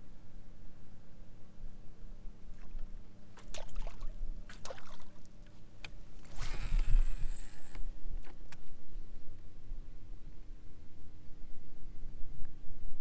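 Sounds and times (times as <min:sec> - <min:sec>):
low steady rumble: 0:00.0 - 0:13.0
water lapping against kayak hull: 0:03.5 - 0:05.3.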